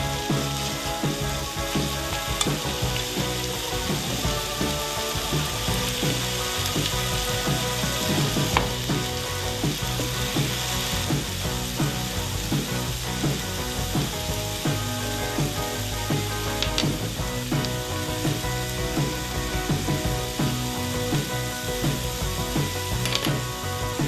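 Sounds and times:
food sizzling in a frying pan: 0:00.0 - 0:24.0.

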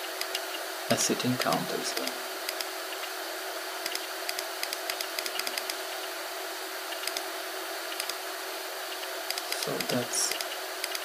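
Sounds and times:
computer mouse clicks: 0:02.5 - 0:03.0, 0:03.8 - 0:05.8, 0:06.9 - 0:07.3, 0:07.9 - 0:08.2, 0:09.3 - 0:11.0.

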